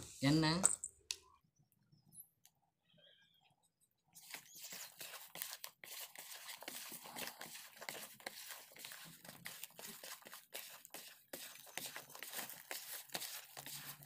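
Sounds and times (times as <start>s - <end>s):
hands squishing wet fish: 4.2s - 14.0s.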